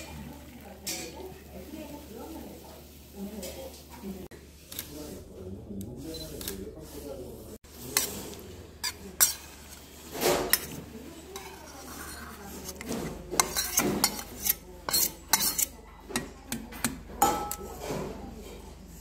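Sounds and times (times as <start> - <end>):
spoon scraping bowl: 7.7 - 17.0.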